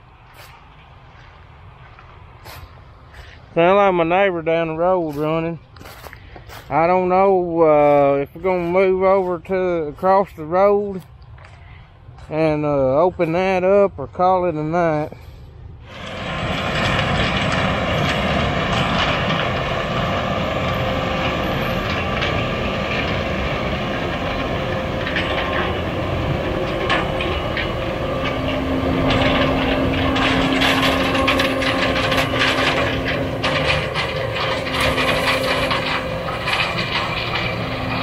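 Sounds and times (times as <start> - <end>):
heavy farm machinery running: 0.0 - 38.0
low hum: 15.2 - 38.0
clicking and rattling: 15.9 - 38.0.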